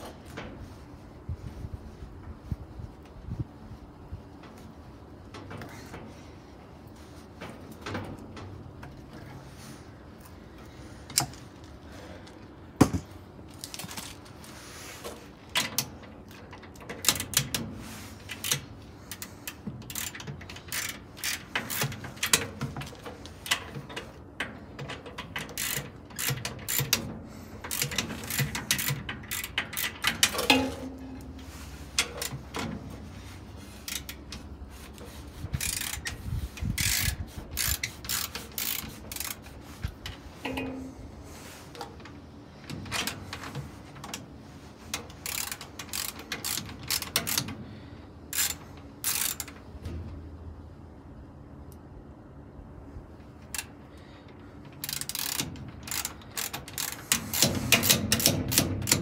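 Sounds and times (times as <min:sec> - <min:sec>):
ratchet wrench clicking: 0:15.5 - 0:17.6, 0:18.3 - 0:31.2, 0:31.9 - 0:32.7, 0:33.8 - 0:34.4, 0:35.5 - 0:40.8, 0:44.9 - 0:47.6, 0:48.3 - 0:49.6, 0:54.7 - 0:59.0.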